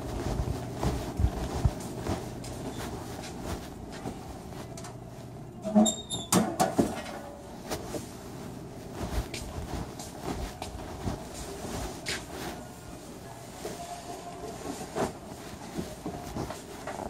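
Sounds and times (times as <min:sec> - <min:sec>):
steady background hum: 0:00.0 - 0:17.0
short squeak: 0:05.6 - 0:06.4.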